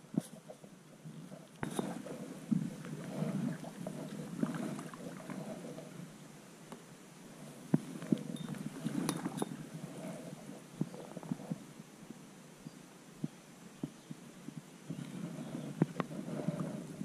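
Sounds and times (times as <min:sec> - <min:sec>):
paddle splashing through water: 0:01.6 - 0:05.7.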